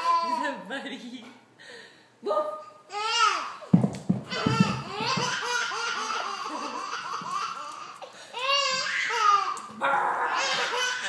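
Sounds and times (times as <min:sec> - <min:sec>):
baby giggling: 0:04.3 - 0:09.6, 0:10.4 - 0:11.0.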